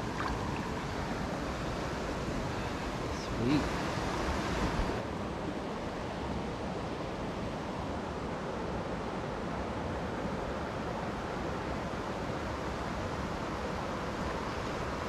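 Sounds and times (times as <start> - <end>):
creek flowing over stones: 0.0 - 5.0.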